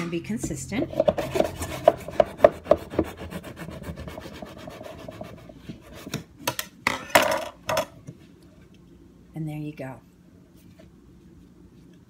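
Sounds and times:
knife sawing through bread: 1.0 - 5.4.

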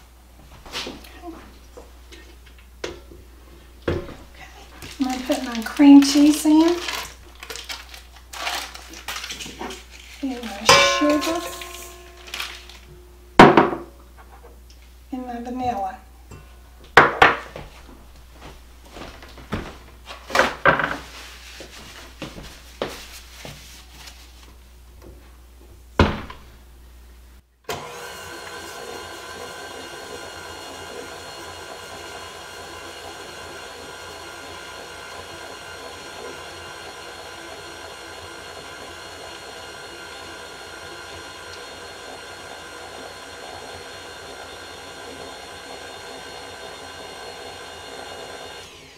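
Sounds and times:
stand mixer motor humming: 27.7 - 48.9.

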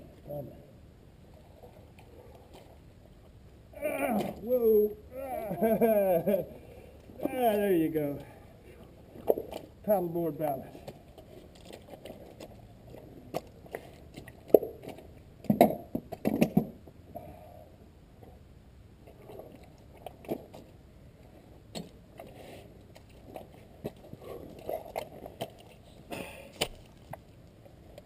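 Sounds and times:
footsteps squelching in mud: 26.3 - 27.3.

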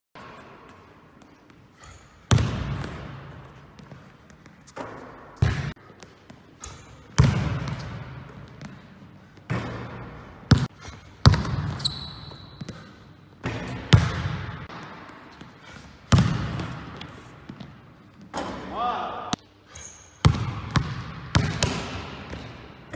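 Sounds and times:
basketball bouncing in gym: 0.2 - 19.1, 20.1 - 22.9
shoe squeak: 11.7 - 12.8.

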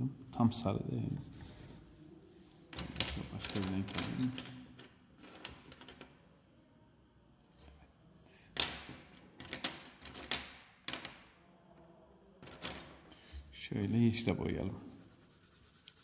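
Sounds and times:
coloured pencils clicking and rattling: 8.6 - 11.3, 12.4 - 13.0.

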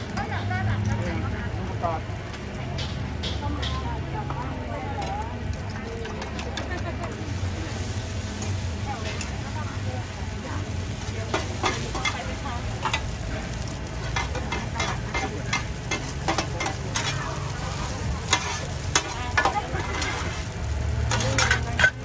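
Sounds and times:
batter sizzling in hot oil: 0.0 - 22.0
metal spatulas scraping pan: 14.0 - 22.0.

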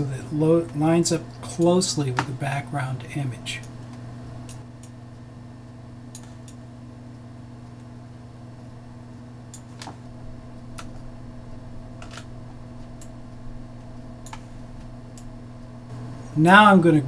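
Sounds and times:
computer hum: 0.0 - 17.0
computer mouse clicks: 6.1 - 6.6, 14.2 - 14.5.

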